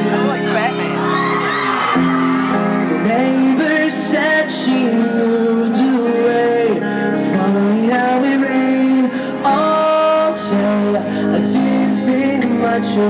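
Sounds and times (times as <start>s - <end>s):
rock band playing ballad: 0.0s - 13.0s
person singing: 2.8s - 13.0s.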